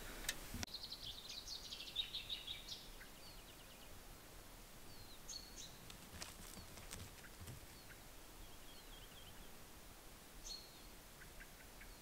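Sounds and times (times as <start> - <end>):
faint background noise: 0.0 - 12.0
songbird twittering: 0.7 - 4.0, 4.8 - 9.6, 10.4 - 12.0
faint bird chirps: 0.7 - 9.7, 10.4 - 12.0.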